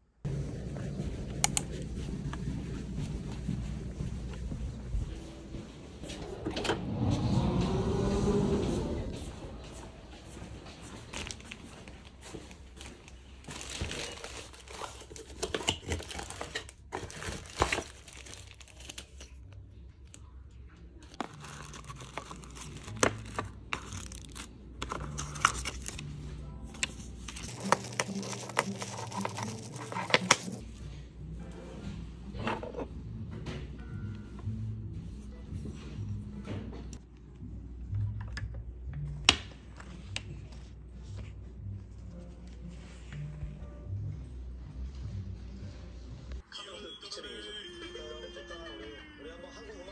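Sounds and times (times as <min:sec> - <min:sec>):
plastic wrapping crinkling: 0:13.0 - 0:19.5, 0:21.1 - 0:26.0, 0:27.0 - 0:30.6
cardboard box opening: 0:21.2 - 0:26.0, 0:27.3 - 0:30.6.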